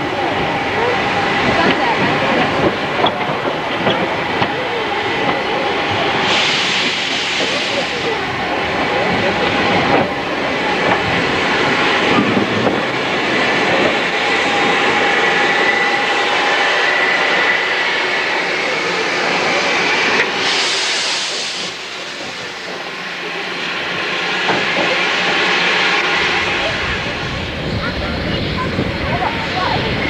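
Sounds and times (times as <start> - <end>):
steam locomotive hiss and rumble: 0.0 - 30.0
sharp hiss of steam: 5.7 - 9.7, 14.3 - 27.2.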